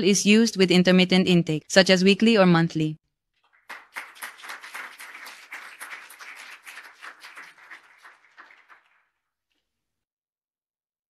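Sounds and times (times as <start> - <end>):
audience applauding: 3.4 - 9.2.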